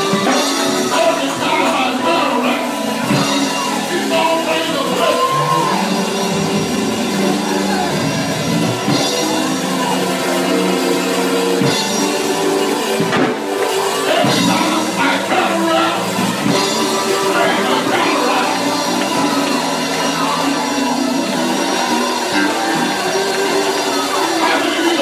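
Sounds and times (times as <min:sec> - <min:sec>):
drum kit beat: 0:00.0 - 0:25.0
held organ chords: 0:00.0 - 0:25.0.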